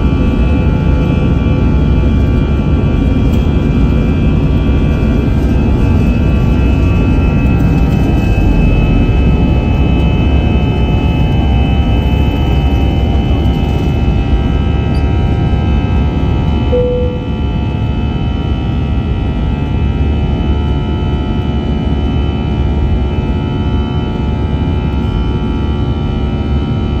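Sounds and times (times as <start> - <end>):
brief cabin tone: 16.7 - 17.8.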